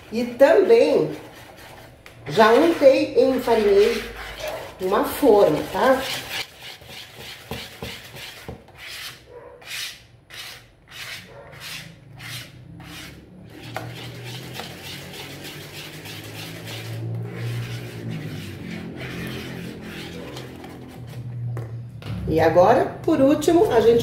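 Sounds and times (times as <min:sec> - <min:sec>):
whisk beating batter in plastic bowl: 0:00.0 - 0:08.8, 0:12.9 - 0:21.0.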